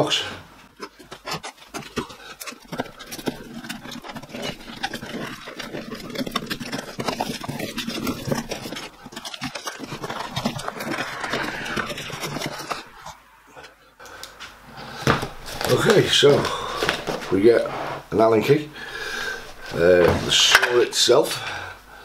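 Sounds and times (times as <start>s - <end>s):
cardboard box flaps rustling: 1.1s - 13.2s, 15.0s - 17.7s.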